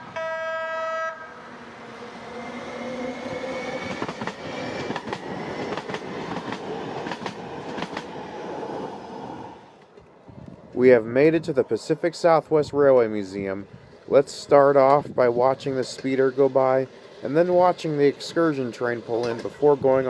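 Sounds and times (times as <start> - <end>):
train horn: 0.0 - 1.5
train passing: 0.0 - 20.0
train wheel clicks: 3.8 - 8.2, 15.8 - 19.9.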